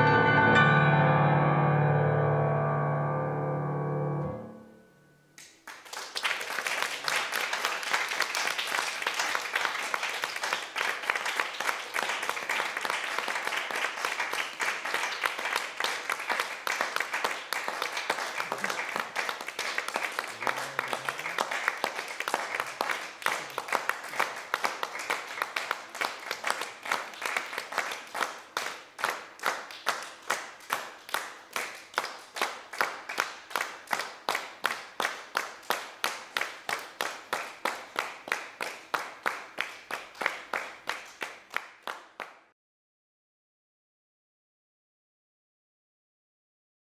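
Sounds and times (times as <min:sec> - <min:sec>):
rhythmic clapping in unison: 0:05.4 - 0:42.5
audience applause: 0:05.6 - 0:42.5.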